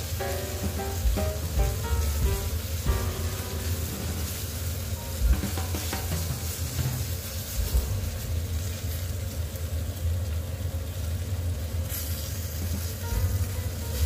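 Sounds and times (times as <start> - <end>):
chicken sizzling in a pot: 0.0 - 14.0
steady low hum: 0.0 - 14.0.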